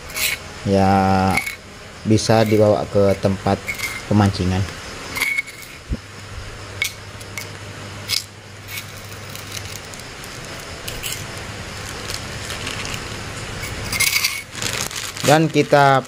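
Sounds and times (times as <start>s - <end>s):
metal spoon scraping stone mortar: 0.0s - 0.4s, 1.2s - 1.6s, 3.6s - 4.1s, 5.1s - 5.8s, 6.8s - 9.8s, 10.8s - 11.3s, 13.6s - 14.5s
plastic bag crinkling: 8.8s - 16.0s.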